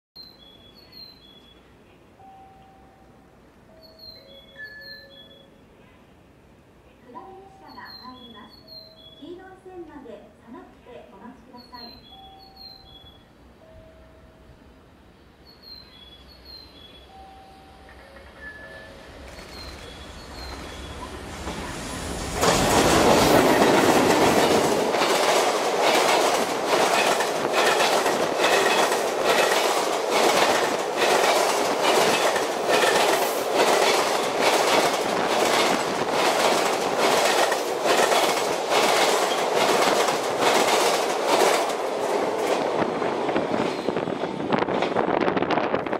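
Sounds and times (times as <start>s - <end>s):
train passing with loud rush: 11.6s - 45.9s
wheels clattering over rail joints: 22.4s - 45.0s.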